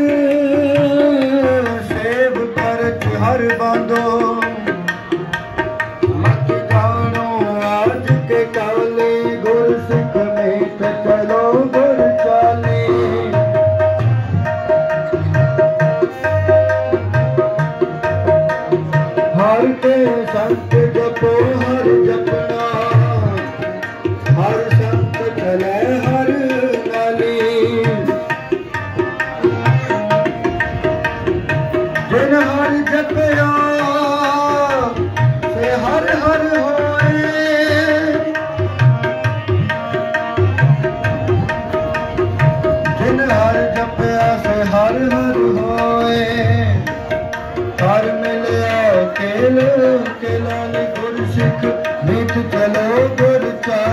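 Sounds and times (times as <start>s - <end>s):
tabla rhythm: 0.0s - 53.9s.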